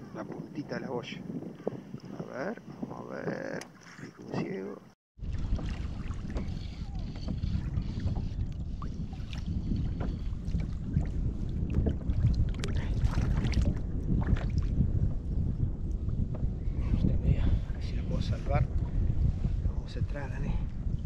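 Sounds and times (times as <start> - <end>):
wind buffeting microphone: 0.0 - 21.0
water lapping against kayak hull: 1.3 - 4.6, 5.2 - 19.6
light knocks and splashes: 5.2 - 6.5.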